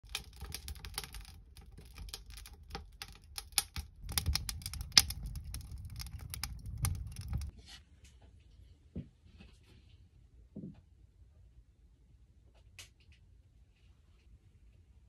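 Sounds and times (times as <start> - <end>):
wood fire crackling and popping: 0.0 - 7.5
low rumble: 0.1 - 7.5.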